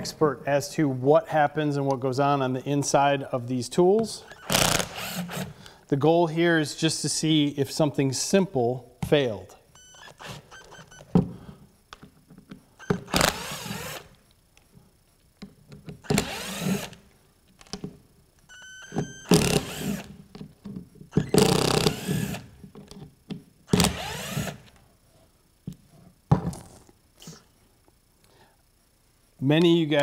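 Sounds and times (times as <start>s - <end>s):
impact driver motor whine: 4.2s - 5.6s, 9.8s - 11.2s, 12.8s - 14.2s, 16.0s - 17.1s, 18.5s - 20.2s, 21.1s - 22.6s, 23.7s - 24.8s.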